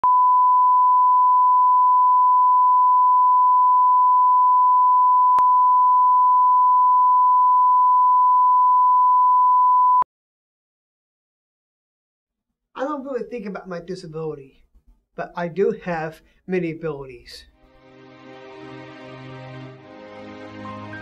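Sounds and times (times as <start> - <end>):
steady sine test tone: 0.0 - 10.0.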